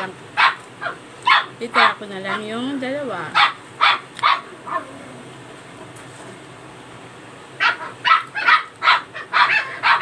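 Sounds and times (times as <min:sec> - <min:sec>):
dog yapping: 0:00.4 - 0:01.9, 0:03.3 - 0:05.1, 0:07.6 - 0:10.0.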